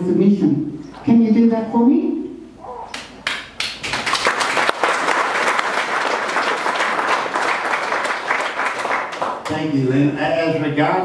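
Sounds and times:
audience applauding: 0:02.9 - 0:09.6.

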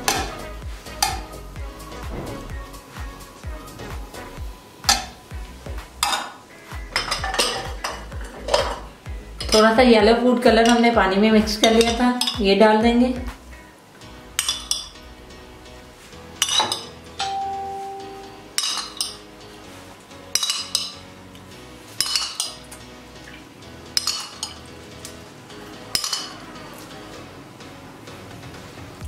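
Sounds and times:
soft background music: 0:00.0 - 0:29.0
metal spoon clinking on cookware: 0:07.0 - 0:08.8, 0:10.6 - 0:10.9, 0:14.4 - 0:14.9, 0:16.4 - 0:17.4, 0:18.6 - 0:19.2, 0:20.3 - 0:21.0, 0:22.0 - 0:22.7, 0:24.0 - 0:24.6, 0:25.9 - 0:26.4.

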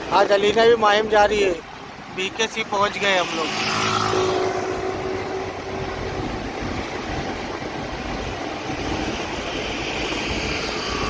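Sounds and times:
road and traffic noise: 0:00.0 - 0:11.0
wind buffeting microphone: 0:00.0 - 0:11.0.

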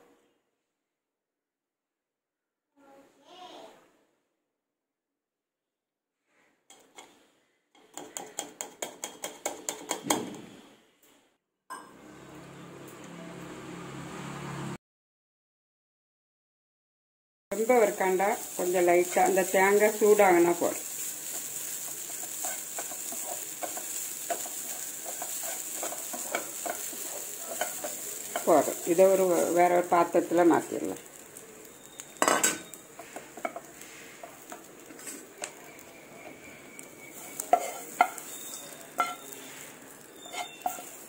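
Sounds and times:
light sizzle: 0:06.7 - 0:10.0, 0:17.5 - 0:41.0
spoon tapping metal pan: 0:07.8 - 0:10.1, 0:37.2 - 0:39.4
spatula scraping frying pan: 0:17.7 - 0:30.1, 0:31.0 - 0:41.0.

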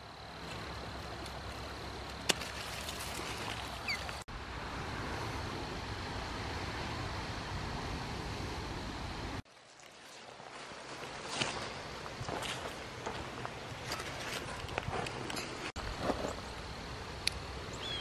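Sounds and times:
low rumble and hiss: 0:00.0 - 0:09.4, 0:14.9 - 0:18.0.

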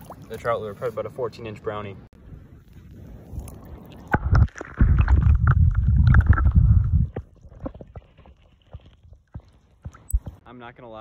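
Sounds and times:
water sloshing and splashing: 0:00.0 - 0:00.9, 0:02.9 - 0:10.3
low underwater rumble: 0:03.4 - 0:09.3.

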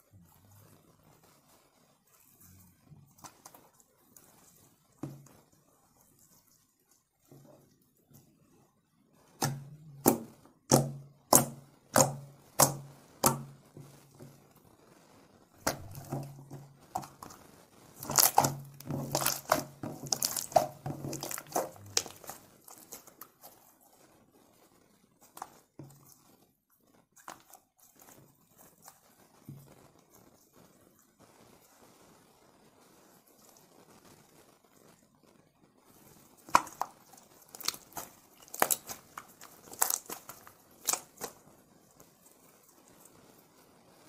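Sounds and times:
slime crackling and squelching: 0:00.0 - 0:31.8, 0:35.9 - 0:44.0
slime popping: 0:09.4 - 0:14.4, 0:15.6 - 0:24.0, 0:27.2 - 0:29.7, 0:36.3 - 0:41.4.

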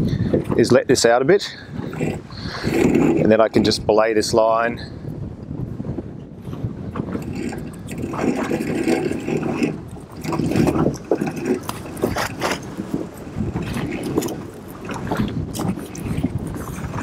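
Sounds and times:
wind buffeting microphone: 0:00.0 - 0:17.0
rope rubbing and knocking: 0:01.9 - 0:03.3, 0:07.0 - 0:17.0.

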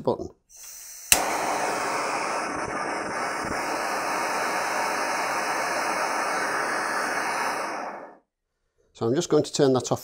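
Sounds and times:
gas stove burner hissing: 0:00.5 - 0:08.2.

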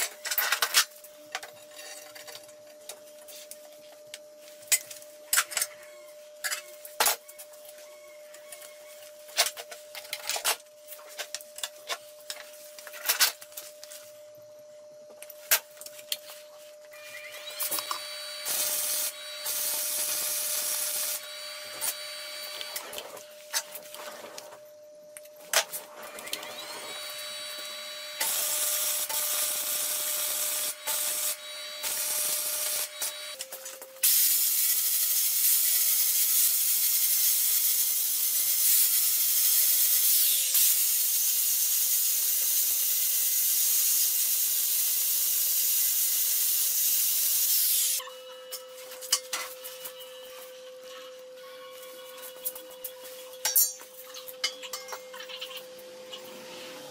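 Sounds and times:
angle grinder grinding steel: 0:16.9 - 0:23.2
electric arc welding: 0:17.0 - 0:23.4, 0:25.6 - 0:33.4, 0:34.0 - 0:48.0.

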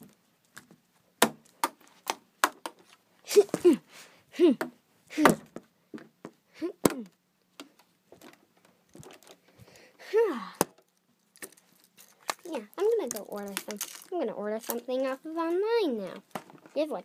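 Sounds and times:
child's wordless vocal noises: 0:10.0 - 0:10.6.

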